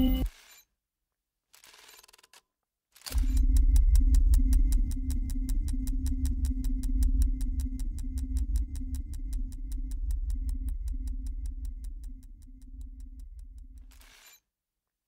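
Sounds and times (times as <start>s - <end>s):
low throbbing hum: 0.0s - 0.3s, 3.1s - 14.0s
pulsing mid-pitched tone: 0.0s - 0.3s, 3.4s - 13.6s
sharp mechanical clicks: 3.0s - 5.0s.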